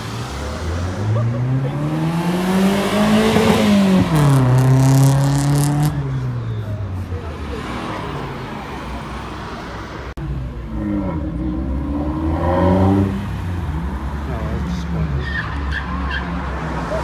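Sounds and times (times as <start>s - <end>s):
car engine revving: 0.0s - 6.2s, 10.4s - 14.9s.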